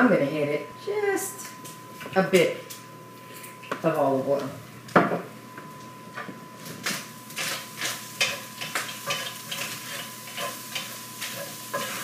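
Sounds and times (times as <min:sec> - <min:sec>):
meat and onions sizzling in a skillet: 0:07.0 - 0:12.0
wooden spoon scraping a pan: 0:07.3 - 0:12.0.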